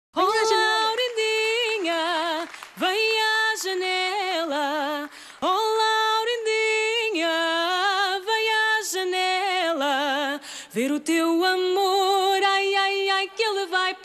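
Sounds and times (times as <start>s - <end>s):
woman singing into a microphone: 0.2s - 14.0s
singer's short breaths: 10.4s - 10.7s.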